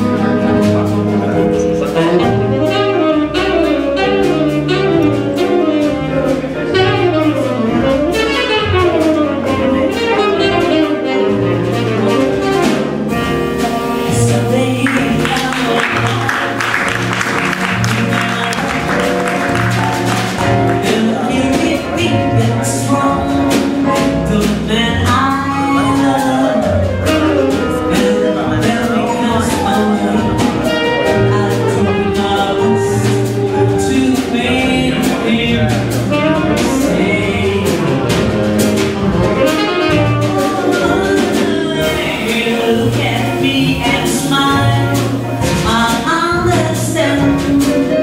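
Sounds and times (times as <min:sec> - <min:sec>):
tenor saxophone: 0:00.0 - 0:24.2, 0:24.8 - 0:48.0
double bass: 0:00.0 - 0:48.0
drum kit: 0:00.0 - 0:48.0
piano: 0:00.0 - 0:48.0
audience clapping: 0:14.8 - 0:20.9.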